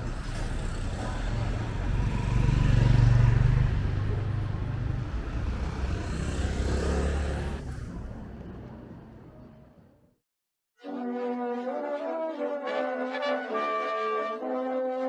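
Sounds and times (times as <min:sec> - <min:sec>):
car passing: 0:00.0 - 0:10.0
vehicle engine approaching: 0:00.0 - 0:10.2.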